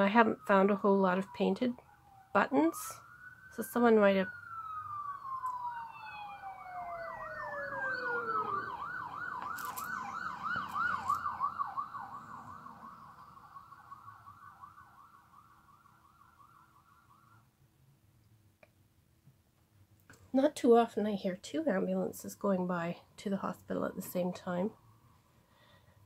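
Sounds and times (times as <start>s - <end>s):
ambulance siren wailing: 0.0s - 17.5s
ambulance siren warbling: 0.0s - 17.5s.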